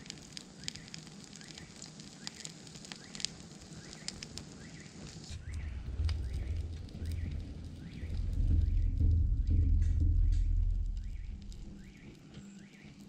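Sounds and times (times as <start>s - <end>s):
fire crackling and popping: 0.0s - 13.0s
low rumble: 5.3s - 12.2s.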